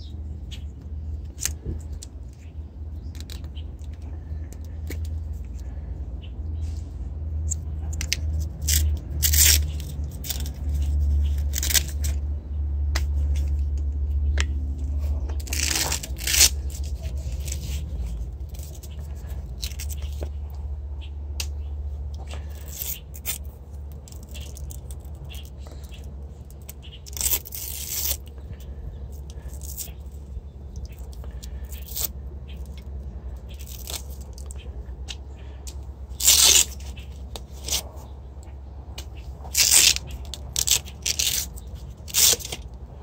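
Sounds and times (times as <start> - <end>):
hook-and-loop strap ripping: 3.1 - 5.7, 7.4 - 12.2, 12.9 - 20.4, 22.2 - 38.1, 39.0 - 42.8
cables and plastic connectors rustling: 13.0 - 20.6, 22.1 - 42.8.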